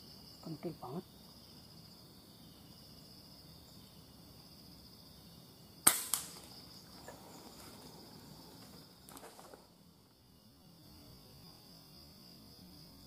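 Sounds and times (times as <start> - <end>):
high insect drone: 0.0 - 13.0
air rifle shot crack: 5.8 - 6.6
weaker crack: 5.8 - 8.0, 8.6 - 9.7.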